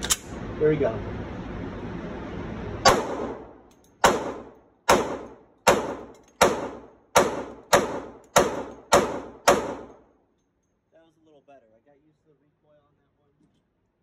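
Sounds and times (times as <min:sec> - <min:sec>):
pistol shots echoing indoors: 0:02.8 - 0:10.0.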